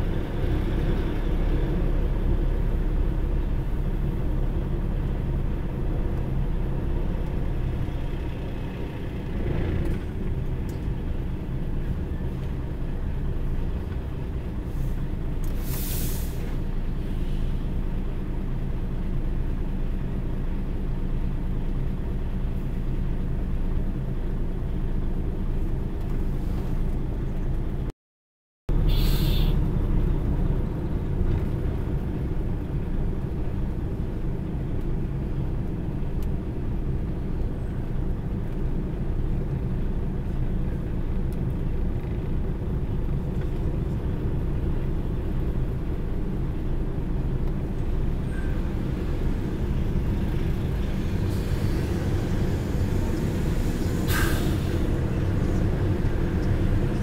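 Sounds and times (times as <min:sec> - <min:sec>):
low engine drone in cab: 0:00.0 - 0:27.9, 0:28.7 - 0:57.0
short hiss: 0:15.5 - 0:16.6, 0:28.9 - 0:29.5, 0:54.0 - 0:54.8.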